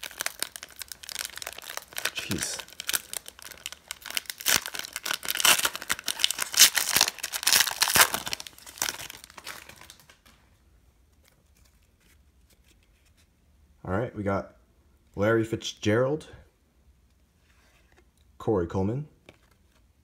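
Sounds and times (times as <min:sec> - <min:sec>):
foil wrapper tearing and crinkling: 0:00.0 - 0:10.2.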